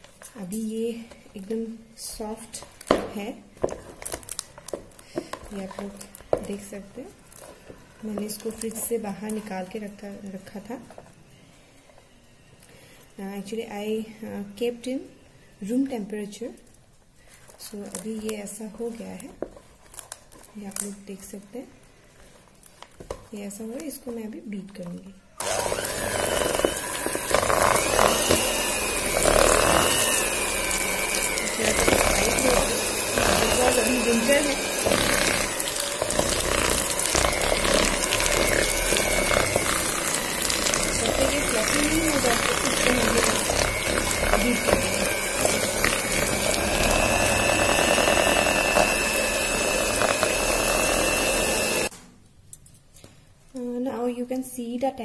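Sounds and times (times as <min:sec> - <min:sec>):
electric hand mixer whining: 0:25.4 - 0:51.9
mixer clicks: 0:25.4 - 0:51.9.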